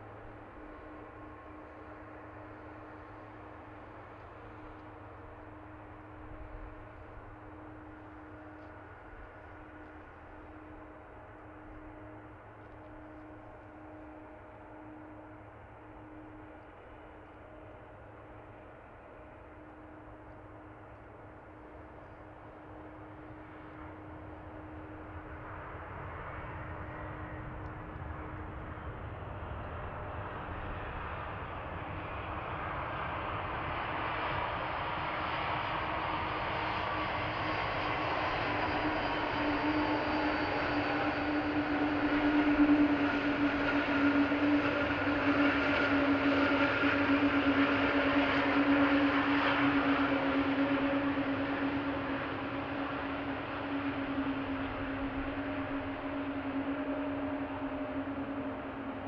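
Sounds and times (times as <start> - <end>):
jet engines spooling up: 20.4 - 59.0.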